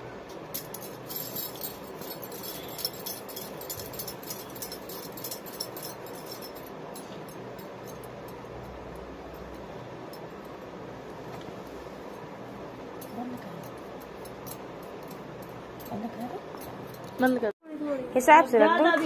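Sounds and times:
low steady hum: 0.0s - 19.0s
metallic clinks on steel plate: 0.4s - 10.6s.

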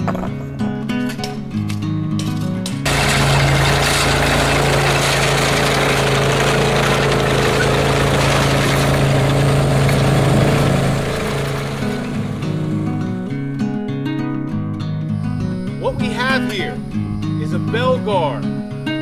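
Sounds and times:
clattering machinery: 2.6s - 13.1s
tracked loader engine running: 2.8s - 13.4s.

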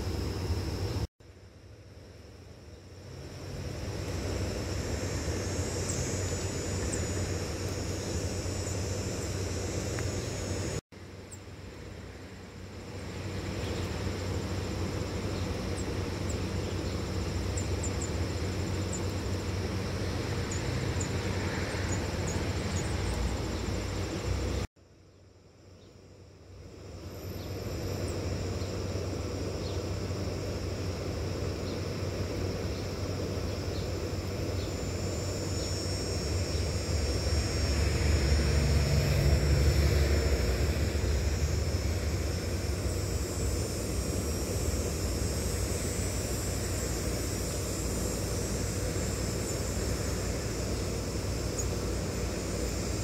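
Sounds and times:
low outdoor rumble: 26.6s - 53.0s.

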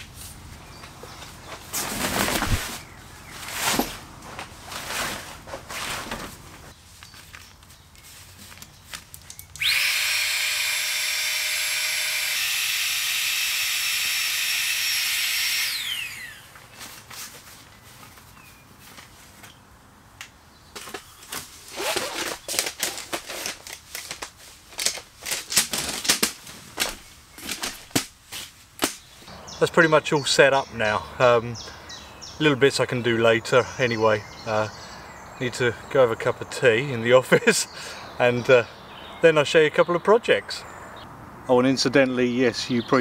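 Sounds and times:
electric air pump running: 9.6s - 16.6s.

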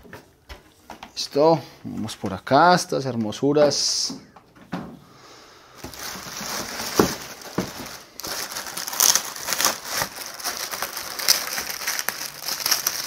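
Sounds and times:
plastic wrapping crinkling: 5.8s - 13.0s.

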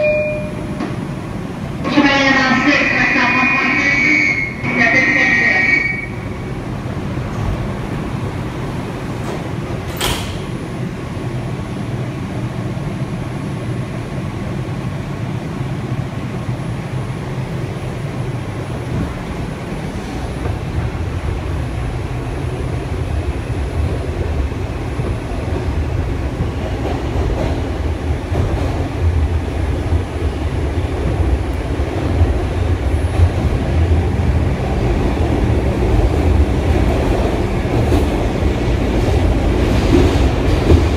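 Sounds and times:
subway doors closing knock: 0.0s - 2.2s, 4.0s - 11.5s, 18.5s - 40.9s
train rumbling through tunnel: 0.0s - 40.9s.

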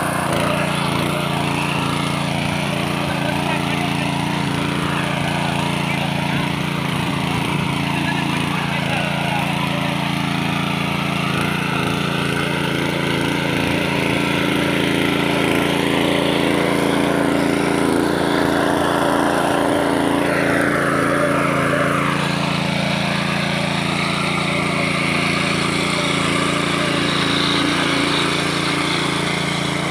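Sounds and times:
engine running steadily: 0.0s - 29.9s
tines churning dry soil: 0.0s - 29.9s.

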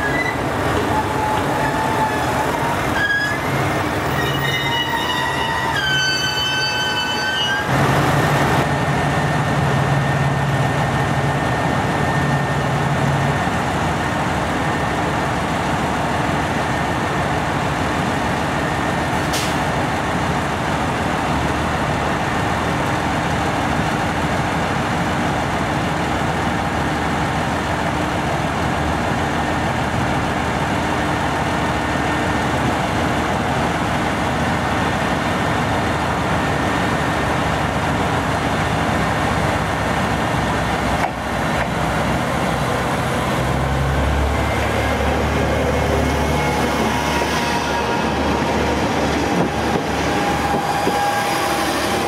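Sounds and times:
diesel railcar engines idling: 0.0s - 52.0s.

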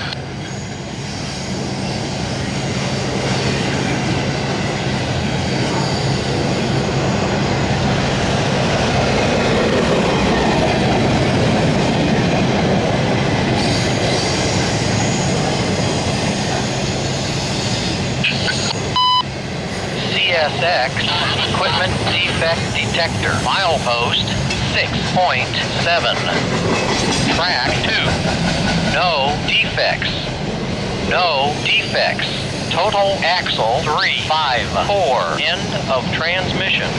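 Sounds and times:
freight train wheels rumbling on rail: 0.0s - 36.9s
wheel squeal: 5.6s - 6.4s.

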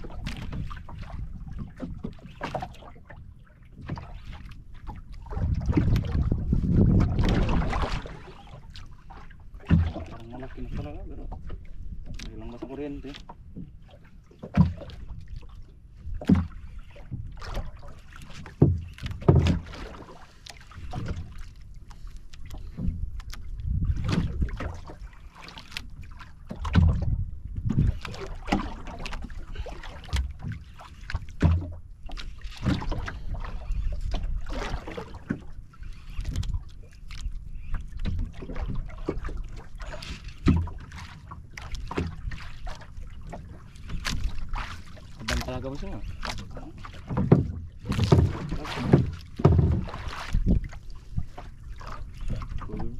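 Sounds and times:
sharp knocks against boat: 0.0s - 21.5s, 22.4s - 35.6s, 36.2s - 52.9s
water slapping wooden hull: 0.0s - 52.9s
wind rumbling on microphone: 5.1s - 8.6s, 22.6s - 24.9s, 26.6s - 29.7s, 47.3s - 52.9s.

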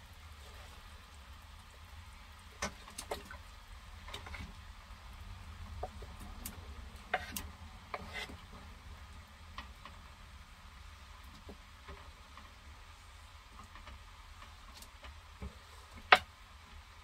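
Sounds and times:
low steady hum: 0.0s - 17.0s
utensil scraping wooden board: 7.1s - 8.4s.

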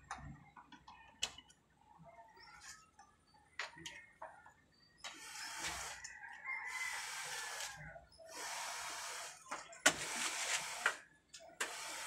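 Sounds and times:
rooster crowing: 6.0s - 7.9s.

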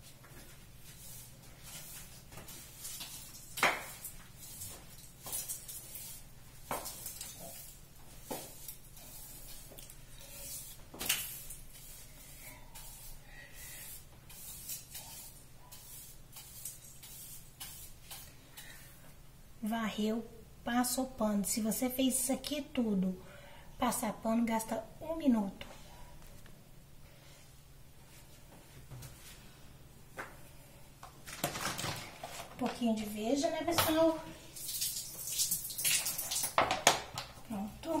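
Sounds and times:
broom sweeping tiled floor: 0.0s - 19.2s, 27.1s - 30.6s, 31.2s - 36.7s.

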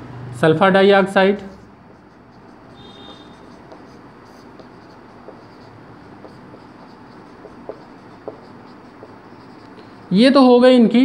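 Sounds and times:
marker pen writing on whiteboard: 1.0s - 10.2s
pen tapping on whiteboard: 2.7s - 9.9s.

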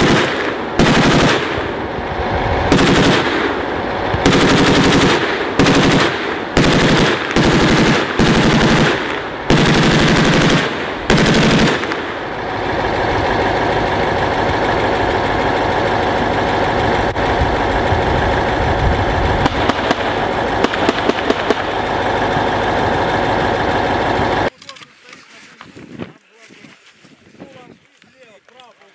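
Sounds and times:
machine-gun fire: 0.0s - 1.9s, 2.7s - 12.6s, 17.2s - 22.4s
sharp gunshots: 0.0s - 1.9s, 2.6s - 12.4s, 19.4s - 21.9s
loud rumble: 0.0s - 24.5s.

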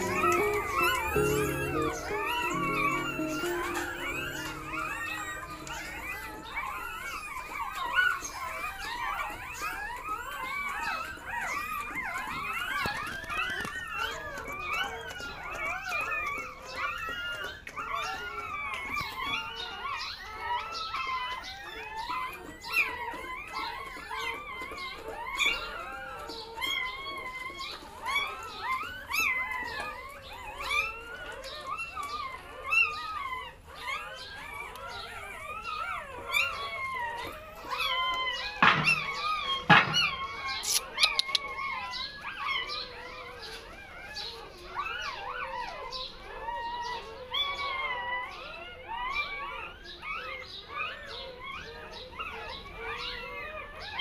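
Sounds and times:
puppies squeaking and whimpering: 0.0s - 54.0s
sharp knocks: 38.6s - 40.5s.

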